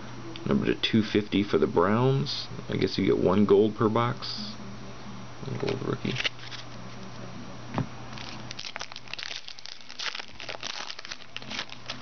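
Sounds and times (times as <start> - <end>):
foil wrapper crinkling: 8.1 - 12.0.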